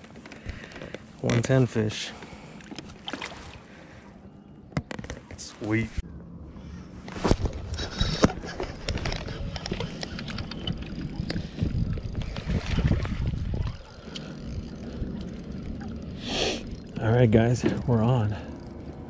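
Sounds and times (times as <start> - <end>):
handling knocks and clicks: 0.0 - 1.6, 4.7 - 5.5, 7.2 - 12.5
wind rumble on microphone: 5.8 - 18.4.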